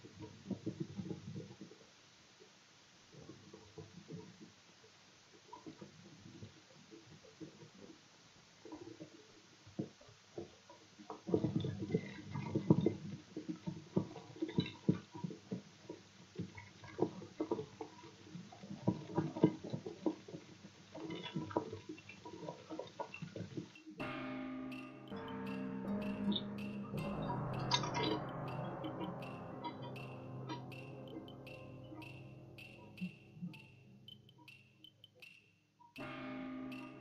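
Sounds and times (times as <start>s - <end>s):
music: 24.0s - 37.0s.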